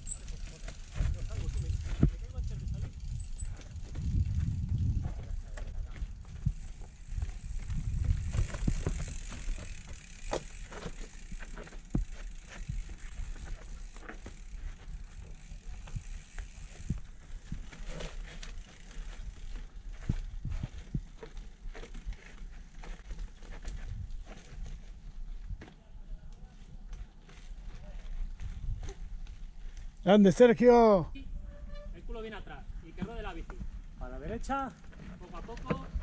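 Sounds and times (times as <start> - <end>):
freewheel ticking: 0.0 - 19.4
bike frame and chain rattling: 0.0 - 25.5, 26.9 - 30.2, 31.4 - 36.0.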